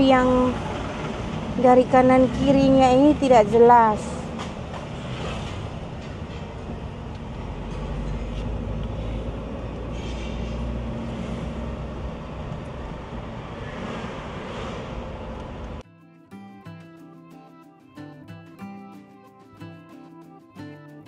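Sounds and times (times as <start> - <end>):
car engine and road rumble: 0.0 - 15.8.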